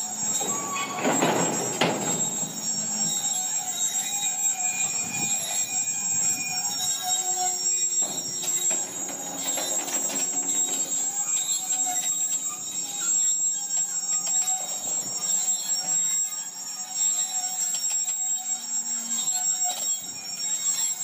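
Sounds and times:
wagons rolling rumble: 0:00.0 - 0:16.0
train wheels squealing: 0:00.0 - 0:21.0
clicks and knocks: 0:07.8 - 0:12.4.

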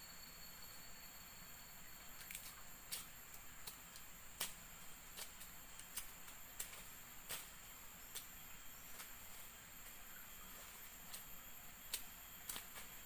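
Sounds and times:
insects droning: 0:00.0 - 0:13.0
plant stems snapping: 0:02.2 - 0:04.6, 0:05.2 - 0:07.5, 0:11.9 - 0:13.0.

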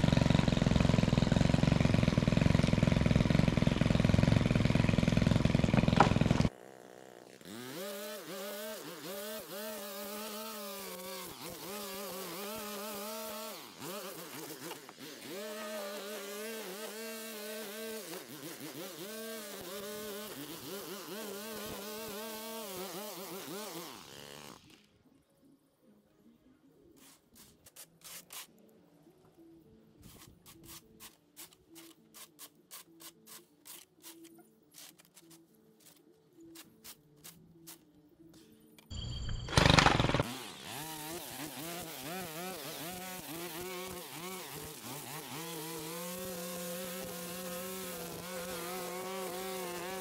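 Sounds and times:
small petrol engine running: 0:00.0 - 0:24.5, 0:39.2 - 0:50.0.

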